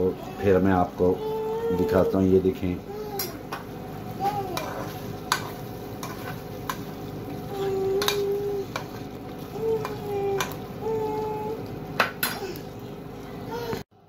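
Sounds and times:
sauce sizzling: 0.0 - 13.7
metal spoon scraping pot: 4.6 - 6.8.

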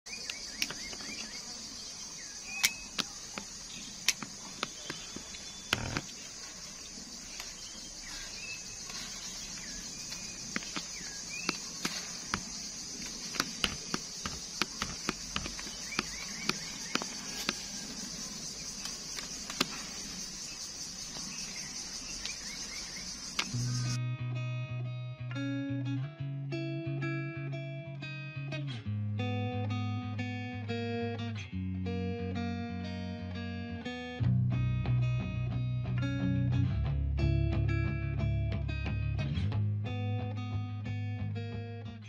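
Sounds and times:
faint chirps: 0.1 - 24.0
insect chorus: 0.1 - 24.0
pruning shears snapping: 2.5 - 6.1, 10.1 - 17.9, 18.8 - 20.0.

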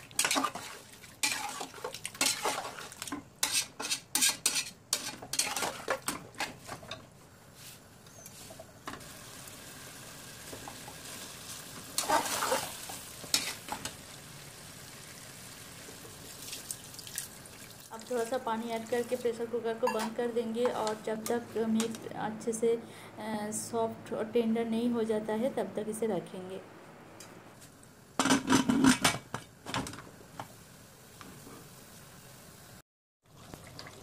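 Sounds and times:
metal spatula scraping pan: 0.1 - 7.0, 12.0 - 13.8
faint sizzle: 6.6 - 28.2, 29.3 - 32.8.

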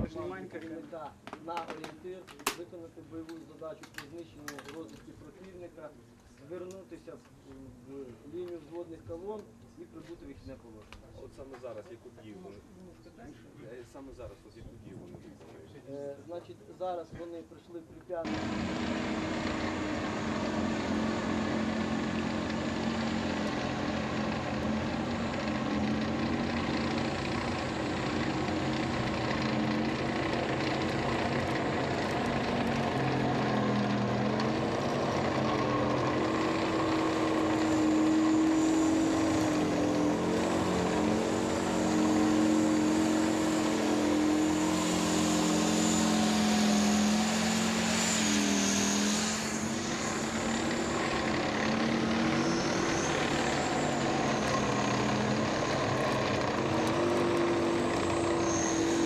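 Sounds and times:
tank diesel engine droning: 18.3 - 59.0.

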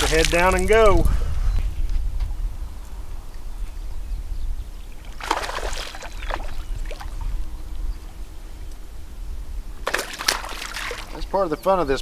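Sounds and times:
water lapping and splashing: 4.9 - 7.8, 9.8 - 11.3.

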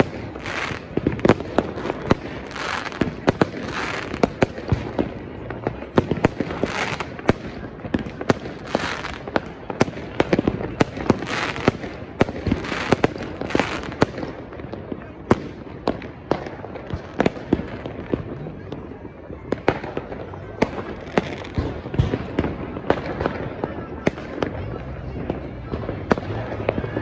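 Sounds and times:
crackle of sparkling fireworks: 0.0 - 27.0
fireworks bangs: 0.0 - 27.0.

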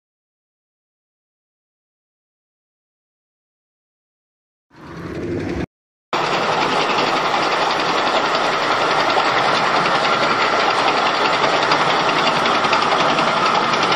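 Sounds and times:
tank engine rattling: 6.2 - 13.9.

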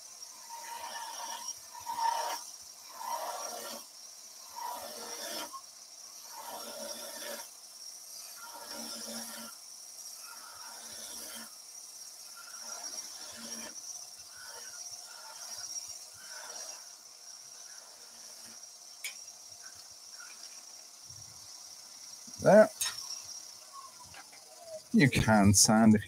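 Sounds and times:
lathe high whine: 0.0 - 26.0
chisel scraping spinning wood: 0.4 - 5.6, 6.2 - 20.8.

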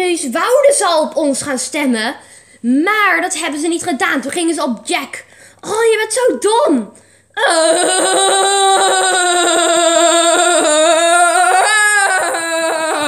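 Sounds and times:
person wailing: 7.4 - 13.0.

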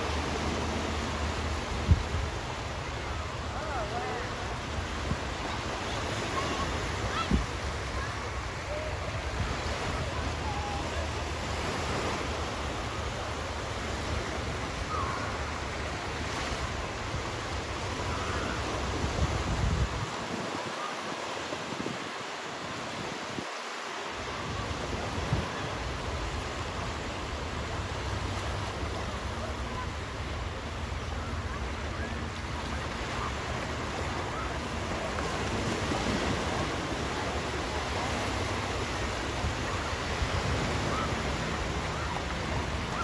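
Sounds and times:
wind rumbling on microphone: 0.0 - 20.8
small waves lapping on shore: 0.0 - 43.0.

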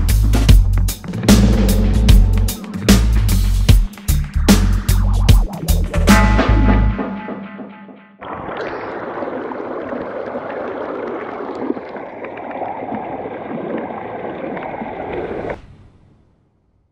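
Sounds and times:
music: 0.0 - 8.2
stream splashing over rocks: 8.2 - 15.6.

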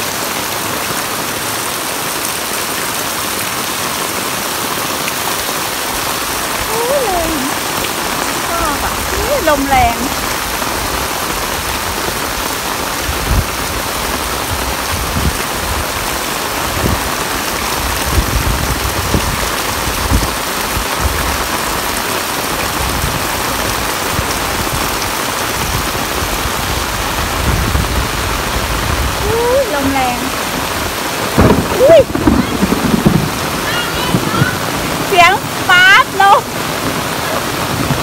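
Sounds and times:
heavy rain on concrete: 0.0 - 38.0
low rumbles: 24.1 - 35.7.

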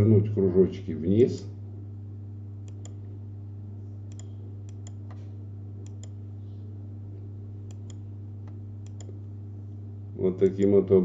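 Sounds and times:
steady low hum: 0.0 - 11.0
computer mouse clicking: 2.7 - 3.0, 4.1 - 5.2, 5.8 - 6.2, 7.7 - 9.2.

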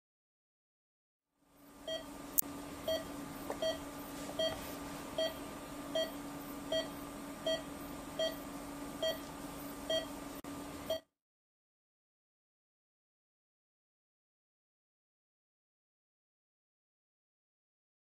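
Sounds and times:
electrical hum: 1.5 - 11.0
patient monitor beeping: 2.9 - 4.6, 5.2 - 8.4, 9.0 - 9.3, 9.9 - 10.2.

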